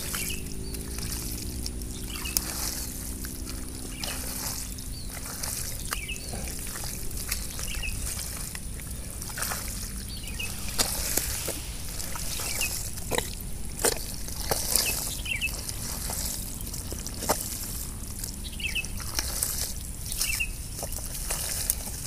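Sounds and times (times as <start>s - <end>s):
bird chirping: 0.0s - 17.0s, 17.9s - 19.2s, 20.0s - 21.0s
hands squelching through wet mud: 0.0s - 22.0s
mud slapping and sloshing: 0.0s - 22.0s
steady low drone: 0.0s - 22.0s.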